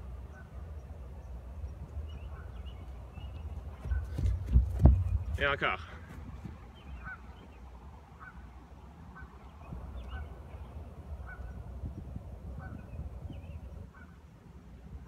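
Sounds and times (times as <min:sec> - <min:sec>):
steady low rumble: 0:00.0 - 0:15.0
bird calling: 0:00.1 - 0:11.7.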